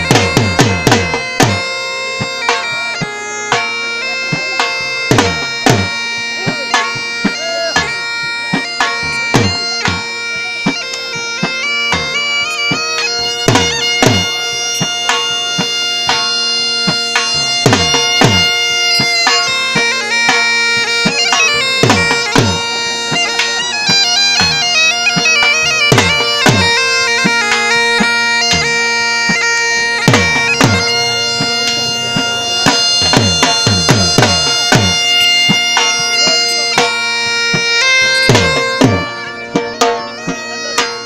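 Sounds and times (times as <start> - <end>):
large drum beating: 0.0 - 23.6, 24.4 - 41.0
bagpipes playing melody: 0.0 - 41.0.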